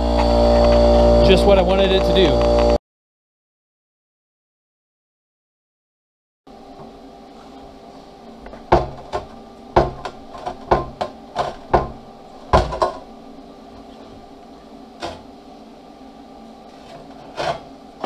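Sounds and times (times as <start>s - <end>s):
faint hum: 0.0s - 2.8s, 6.5s - 18.0s.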